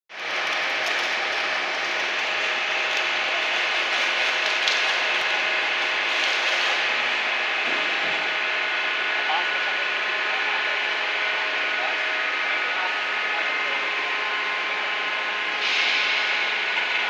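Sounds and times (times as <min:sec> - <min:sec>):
industrial machinery hiss: 0:15.6 - 0:16.6.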